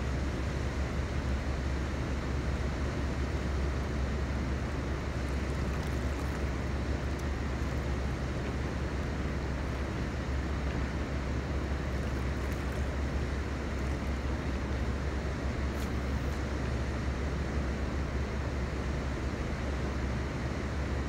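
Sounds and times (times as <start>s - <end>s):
steady low rumble: 3.8s - 18.4s.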